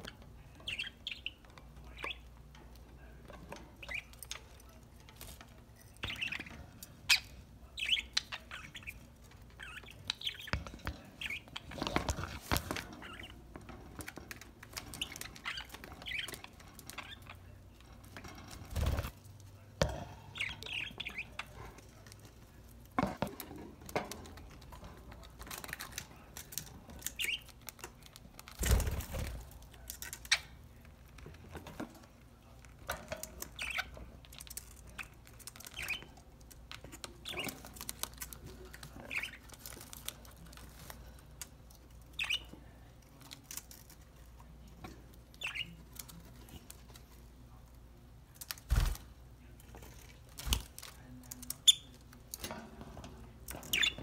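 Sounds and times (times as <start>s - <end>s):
budgerigars chirping: 53.7s - 54.0s.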